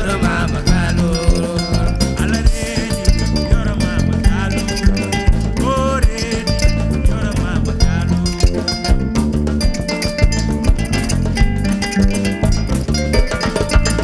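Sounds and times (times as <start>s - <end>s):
person singing: 0.0s - 10.2s
djembe drumming: 0.0s - 14.0s
electric bass line: 0.0s - 14.0s
kora plucked: 0.0s - 14.0s.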